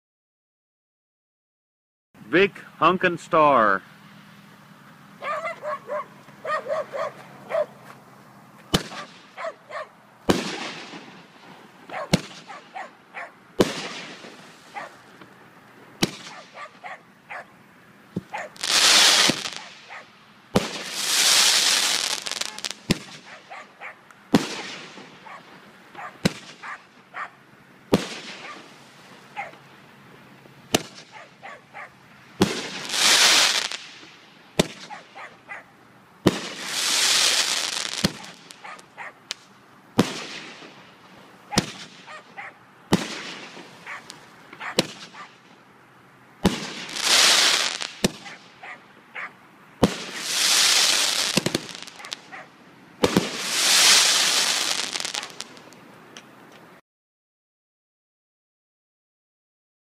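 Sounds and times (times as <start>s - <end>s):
fireworks hiss: 7.2s - 9.4s, 10.2s - 12.8s, 13.6s - 27.1s, 27.8s - 31.4s, 32.0s - 35.2s, 36.1s - 42.2s, 42.9s - 45.6s, 46.4s - 48.6s, 49.8s - 55.9s
fireworks shots: 8.6s - 15.4s, 16.0s - 27.1s, 27.9s - 29.8s, 30.5s - 31.5s, 32.3s - 35.4s, 36.2s - 45.6s, 46.4s - 48.8s, 49.8s - 55.9s.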